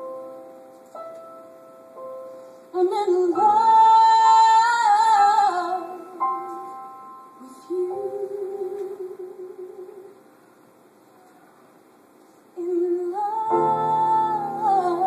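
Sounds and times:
piano: 0.0 - 15.0
woman singing: 2.7 - 6.8, 7.4 - 10.2, 12.6 - 15.0.

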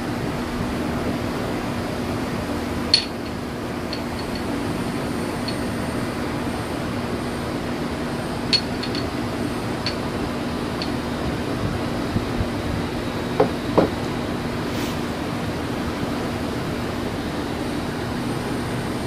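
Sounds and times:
low background hum: 0.0 - 19.0
glassware clinking: 2.9 - 4.5, 8.5 - 9.2.

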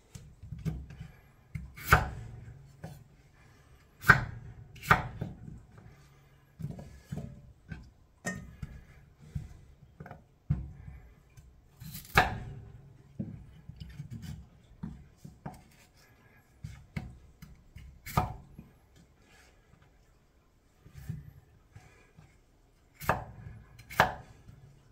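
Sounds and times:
knife chopping on cutting board: 0.5 - 3.0, 4.0 - 5.4, 11.8 - 12.6, 16.6 - 18.5, 23.0 - 24.4.

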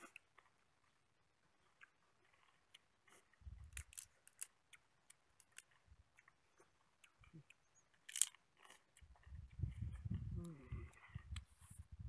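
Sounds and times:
chewing: 0.0 - 11.9
crab shell cracking: 3.6 - 6.4, 8.0 - 9.3
soft low thumps: 9.2 - 12.0.

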